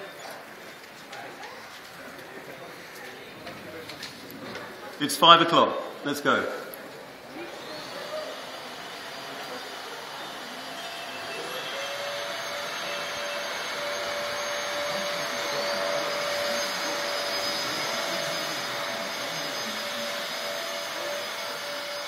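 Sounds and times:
vacuum cleaners running: 5.9s - 22.0s
higher motor whine: 6.6s - 22.0s.

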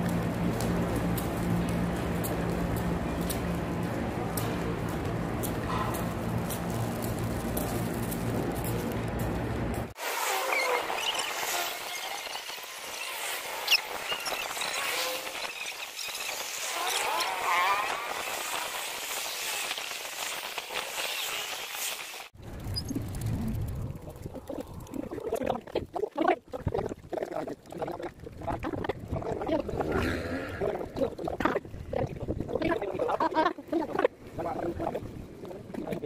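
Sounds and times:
sped-up squeaky chatter: 10.2s - 22.0s
wind buffeting microphone: 22.4s - 25.9s, 28.1s - 33.2s.

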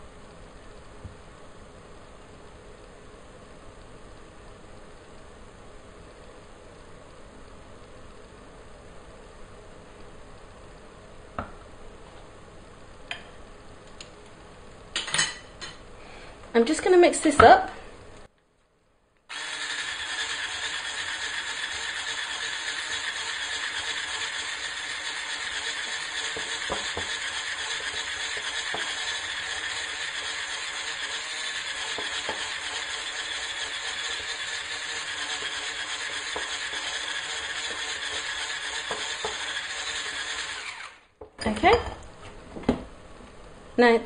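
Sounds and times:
electric hand mixer running: 19.3s - 41.1s.

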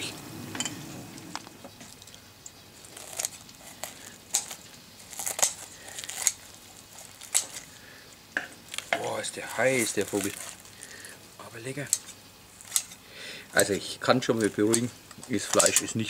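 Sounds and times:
chicken skin crunching: 2.8s - 7.9s, 8.6s - 11.2s, 11.9s - 13.0s.

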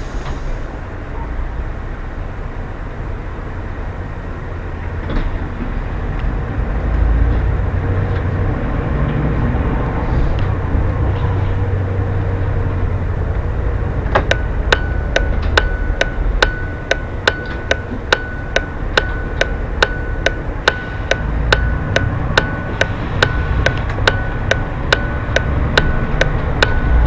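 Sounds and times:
bus engine and tyres rumbling: 0.0s - 27.0s
turn indicator ticking: 14.0s - 27.0s.

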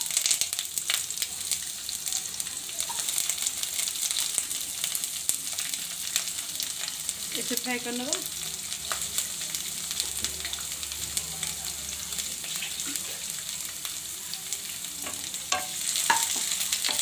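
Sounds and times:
onions sizzling in hot oil: 0.0s - 17.0s
wooden spatula knocking pan: 15.0s - 17.0s.

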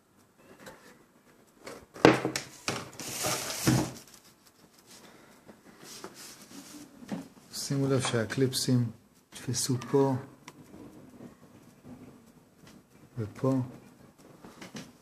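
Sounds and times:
plastic cover scraping and rattling: 1.7s - 4.3s.

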